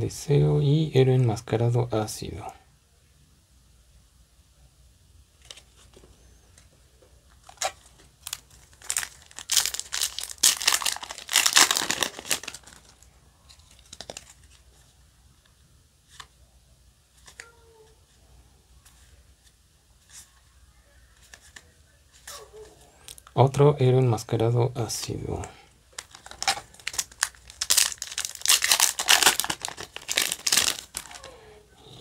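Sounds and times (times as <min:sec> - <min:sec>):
foil wrapper crinkling: 0:07.4 - 0:14.6, 0:25.9 - 0:31.4.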